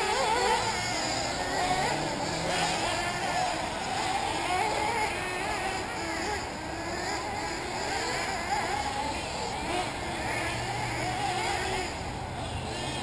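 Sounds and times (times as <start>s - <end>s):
rc car engines whining: 0.0s - 13.0s.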